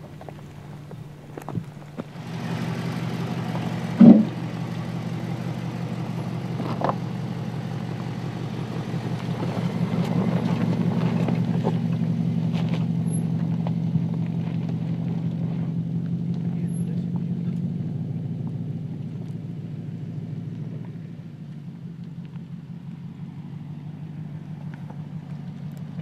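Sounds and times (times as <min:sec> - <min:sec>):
car engine running at low revs: 0:00.0 - 0:26.0
loud thump: 0:04.0 - 0:04.4.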